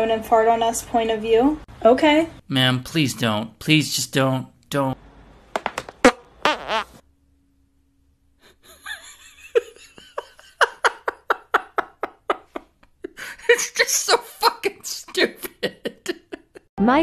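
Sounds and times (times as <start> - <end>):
man laughing hard: 8.5 - 16.7.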